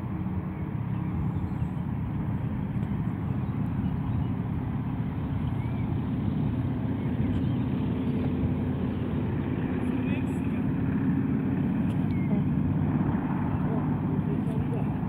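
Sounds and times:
propeller plane engine drone: 0.0s - 15.0s.

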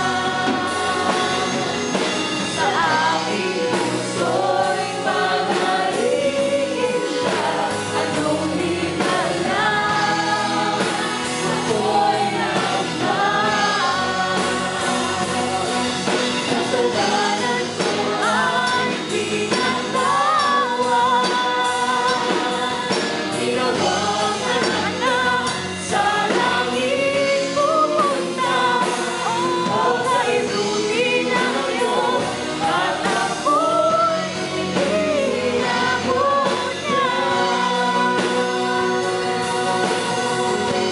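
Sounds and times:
drums: 0.0s - 40.9s
electric guitar: 0.0s - 40.9s
keyboard: 0.0s - 40.9s
people singing into microphones: 0.0s - 40.9s.

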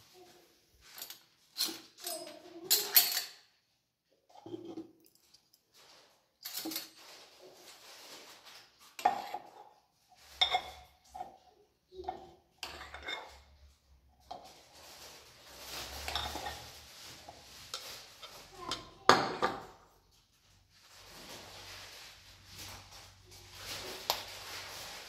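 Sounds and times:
dishes and spoons clinking: 0.9s - 3.5s, 6.4s - 7.0s, 9.0s - 9.6s, 10.3s - 11.4s, 12.1s - 13.6s, 16.0s - 16.8s, 17.7s - 19.8s
scraping and shuffling: 5.6s - 25.0s.

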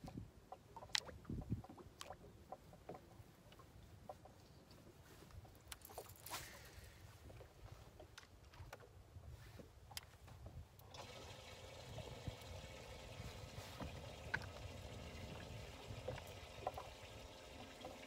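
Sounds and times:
water wash: 10.9s - 18.0s.

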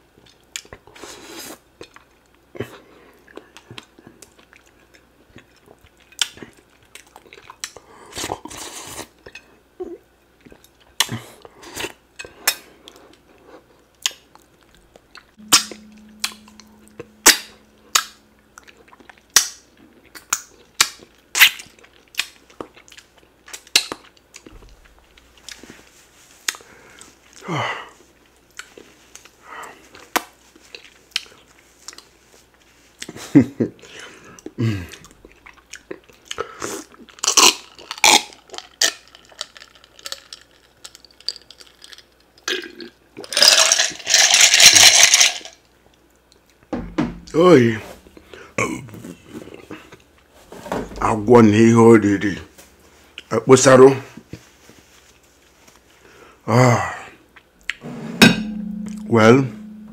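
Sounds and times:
man chewing: 0.2s - 9.4s, 33.9s - 43.6s.

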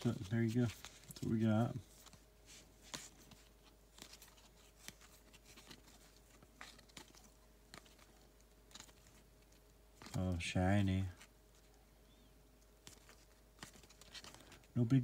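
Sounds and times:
cards shuffled and flipped: 0.0s - 10.4s, 12.8s - 14.7s
faint steady hum: 0.0s - 15.0s.

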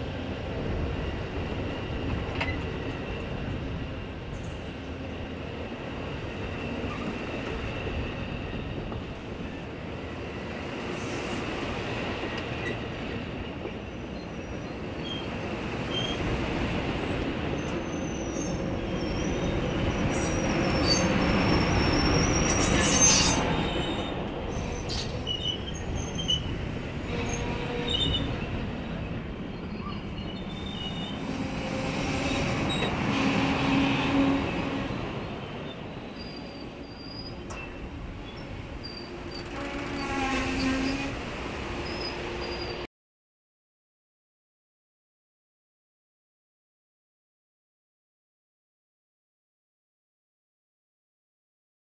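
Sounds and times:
train wheels rumbling on rails: 0.0s - 42.9s
high-pitched wheel squeals: 36.1s - 41.2s, 41.8s - 42.8s.

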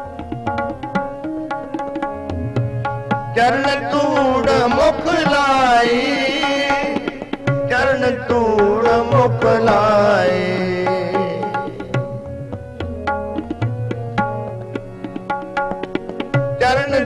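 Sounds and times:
harmonium chords: 0.0s - 17.0s
tabla drum strokes: 0.0s - 17.0s
man singing: 3.3s - 12.0s, 16.6s - 17.0s.

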